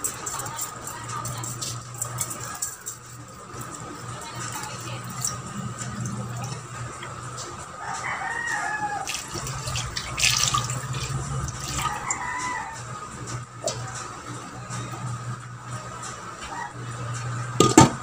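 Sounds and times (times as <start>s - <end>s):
water splashing into a metal pot: 9.0s - 12.2s.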